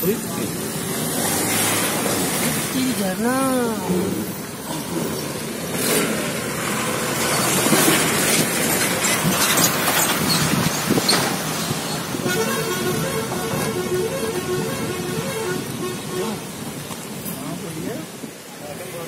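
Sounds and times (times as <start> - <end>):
road and wind noise: 0.0 - 19.0
knocks and clicks from rough road: 4.6 - 12.2.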